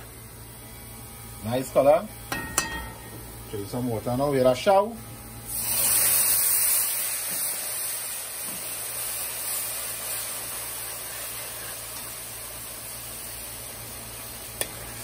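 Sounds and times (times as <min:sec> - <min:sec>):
water sizzling in a hot pan: 0:05.5 - 0:15.0.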